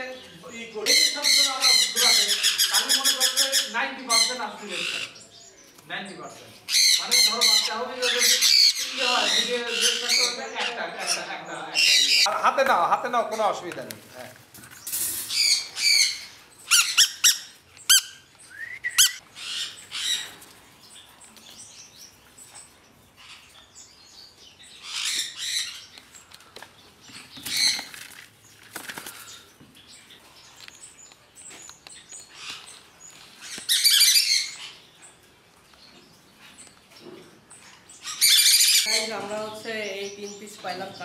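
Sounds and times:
parrot chicks squawking: 0:00.6 - 0:05.3, 0:06.6 - 0:12.4, 0:15.3 - 0:20.5, 0:24.8 - 0:26.0, 0:27.2 - 0:28.0, 0:32.2 - 0:35.0, 0:37.6 - 0:41.0.

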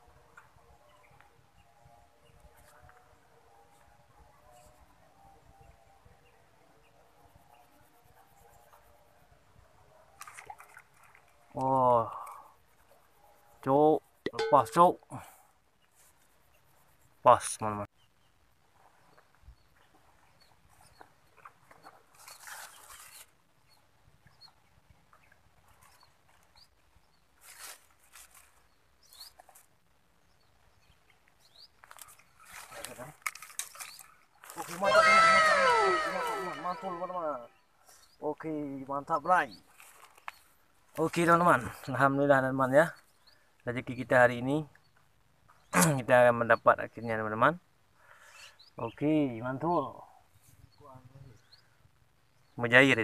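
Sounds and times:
thin wavering creature calls: 0:34.7 - 0:37.5.

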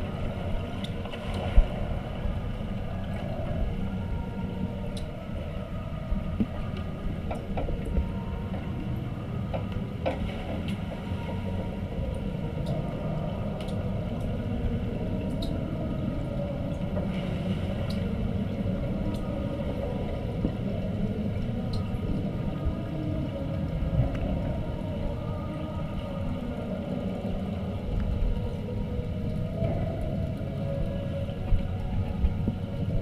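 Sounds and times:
faint steady hum: 0:00.0 - 0:33.0
low underwater rumble: 0:00.0 - 0:33.0.

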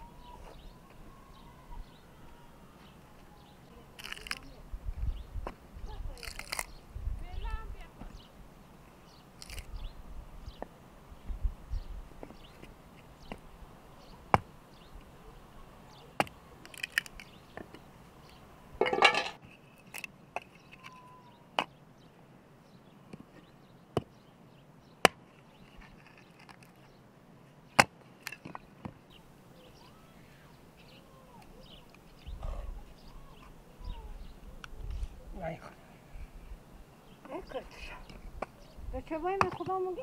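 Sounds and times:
wood cracking: 0:04.0 - 0:04.5, 0:06.2 - 0:06.7, 0:09.4 - 0:09.7, 0:16.2 - 0:17.4.

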